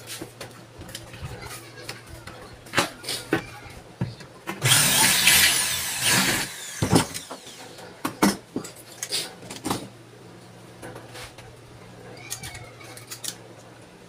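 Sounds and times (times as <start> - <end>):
electric drill boring into metal: 4.6 - 7.6
knocks and clatters of tools: 6.8 - 10.0.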